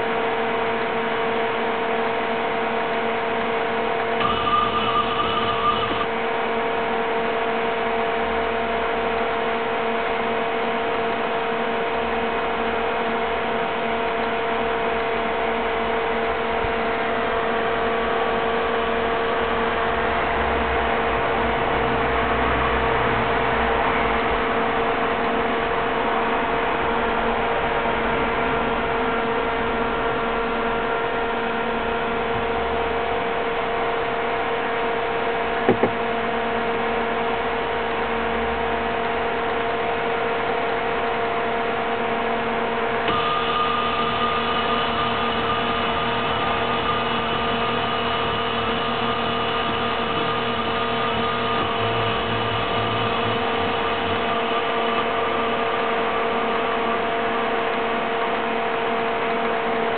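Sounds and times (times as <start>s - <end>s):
higher whine: 4.0s - 7.1s, 41.1s - 57.6s
servo motor whine: 4.2s - 6.1s, 43.0s - 55.8s.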